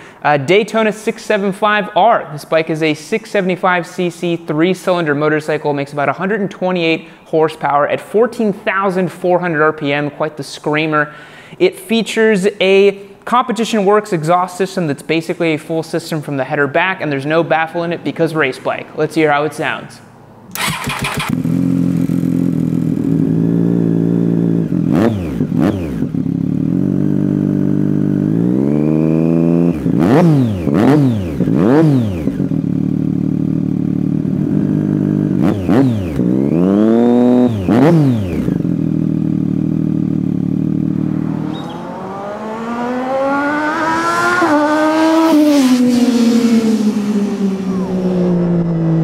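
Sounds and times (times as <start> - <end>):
motorcycle accelerating on road: 20.5 - 49.0
motorcycle engine revving: 20.5 - 49.0.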